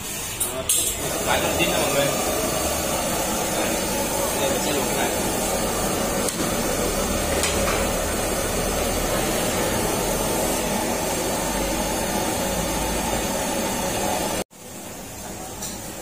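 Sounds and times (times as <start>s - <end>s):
gas burner flames hissing: 0.0s - 16.0s.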